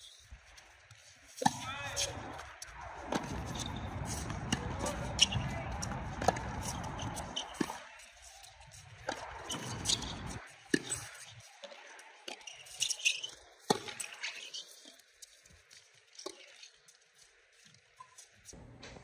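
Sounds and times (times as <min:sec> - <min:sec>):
tennis balls struck: 0:01.4 - 0:02.4, 0:03.1 - 0:07.9.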